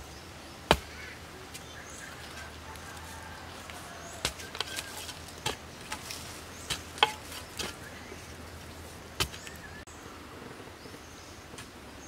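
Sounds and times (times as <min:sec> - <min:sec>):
digging bar knocking stony soil: 0:00.6 - 0:01.7, 0:03.6 - 0:09.6.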